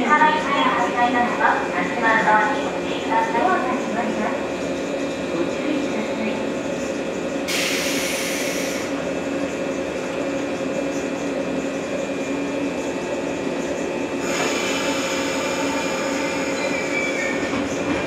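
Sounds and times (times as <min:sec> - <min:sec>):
train equipment humming: 0:00.0 - 0:18.0
hiss with whining tones: 0:07.5 - 0:09.0.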